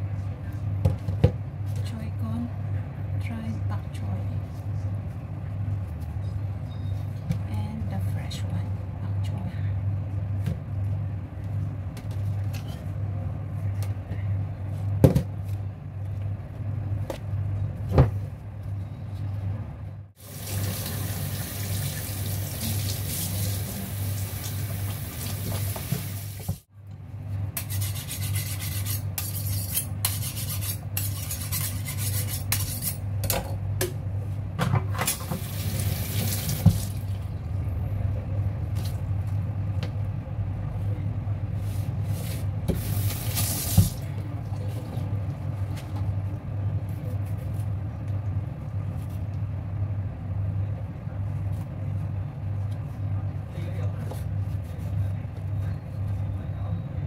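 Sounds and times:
steady low hum: 0.0 - 21.4, 26.6 - 57.0
tap water running into sink: 20.2 - 26.6, 35.1 - 37.0.

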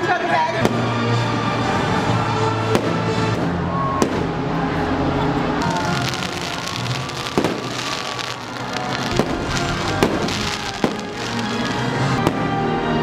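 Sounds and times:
fireworks bangs: 5.6 - 12.5
fireworks crackling: 5.6 - 12.5
loud show music: 5.6 - 12.7.

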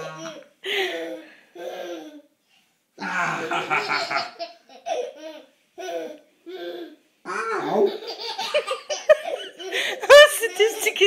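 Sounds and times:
baby laughing: 3.4 - 7.0, 7.6 - 11.0.

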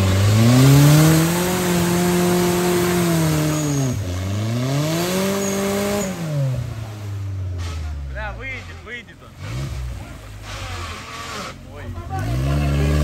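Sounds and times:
car engine revving hard: 0.0 - 7.4, 9.3 - 13.0.

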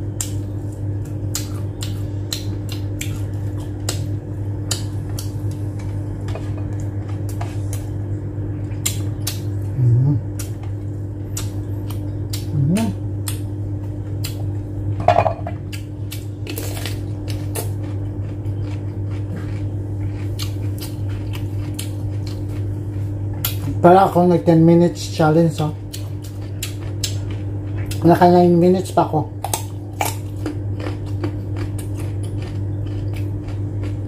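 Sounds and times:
low electrical hum: 0.0 - 34.0
chewing and mouth noises: 0.1 - 14.9, 15.6 - 23.8, 25.5 - 28.5, 29.4 - 34.0
low throaty vocal sounds: 9.7 - 10.3.

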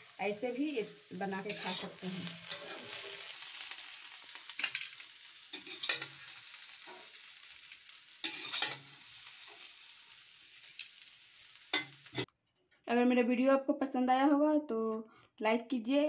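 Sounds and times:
faint sizzle: 0.0 - 12.3
metal spatula scraping iron pan: 1.4 - 3.3, 5.5 - 7.2, 8.2 - 9.7, 11.7 - 12.3.

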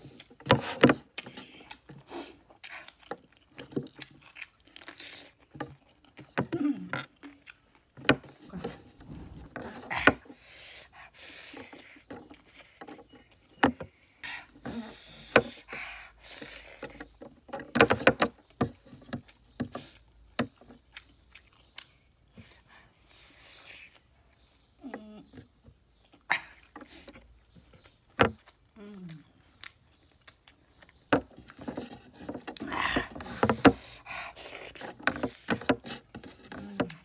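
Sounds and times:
wet chewing: 0.0 - 10.4, 18.4 - 37.0
lip smacks: 19.2 - 24.8, 27.8 - 31.7.

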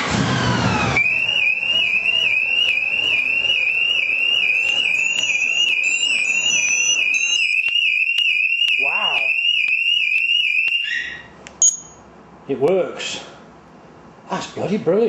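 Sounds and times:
motorcycle alarm siren warbling: 0.0 - 11.4.

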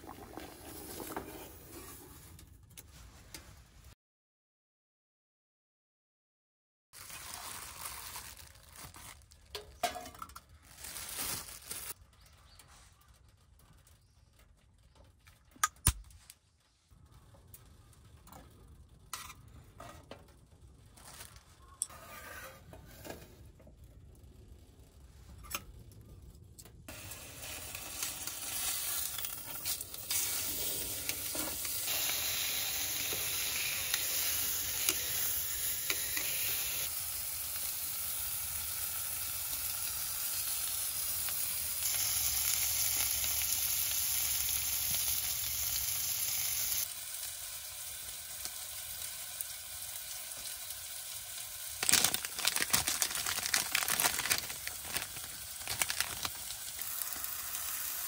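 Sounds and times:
meat sizzling on grill: 26.9 - 58.0
fat crackling and spitting: 51.7 - 58.0.

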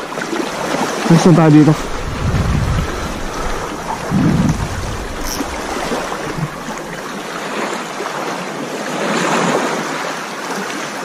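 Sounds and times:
wind on microphone: 0.0 - 7.6
sea water lapping: 0.0 - 11.0.

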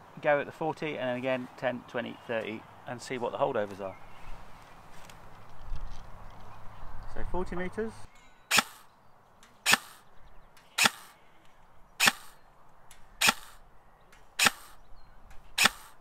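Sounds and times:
airsoft rifle single shots: 8.5 - 8.9, 9.7 - 10.1, 10.8 - 11.2, 12.0 - 12.4, 13.2 - 13.6, 14.4 - 14.8, 15.6 - 16.0.

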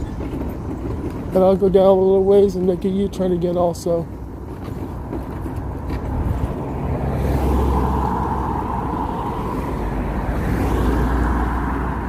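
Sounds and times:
car passing by: 6.0 - 12.0.

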